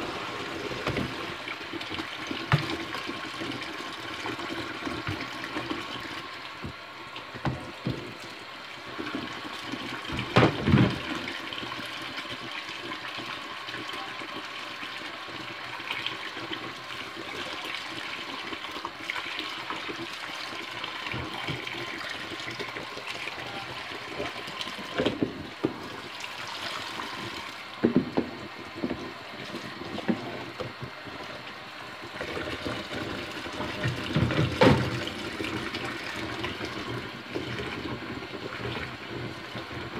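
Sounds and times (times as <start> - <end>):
tap running into steel sink: 6.6 - 8.1.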